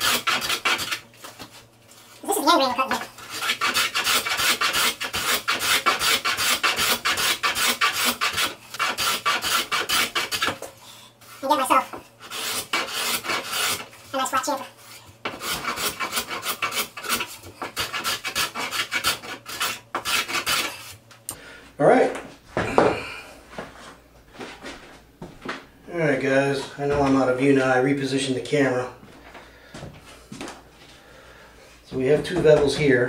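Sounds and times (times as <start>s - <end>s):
hand tool rasping across wood: 0.0s - 1.0s, 2.9s - 10.6s, 11.4s - 21.0s.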